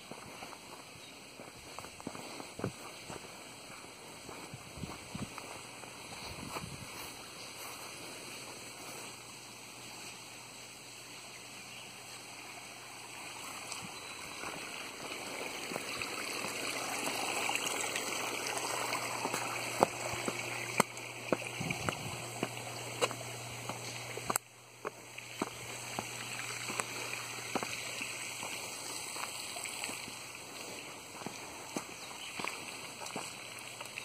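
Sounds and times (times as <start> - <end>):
water rushing: 11.9 - 34.0.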